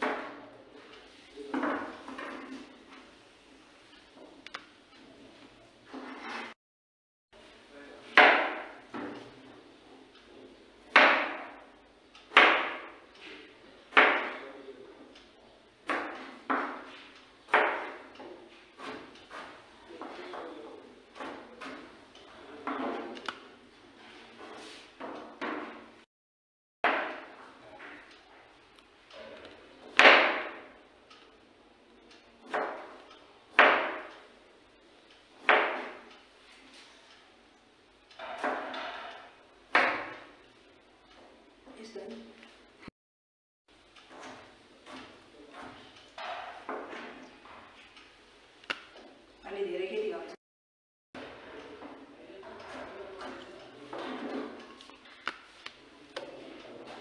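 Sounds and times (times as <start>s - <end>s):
knife chopping on plastic board: 8.2s - 9.1s, 12.3s - 13.0s, 13.9s - 14.4s, 15.8s - 20.1s, 26.9s - 27.3s, 32.4s - 34.1s, 35.4s - 36.1s.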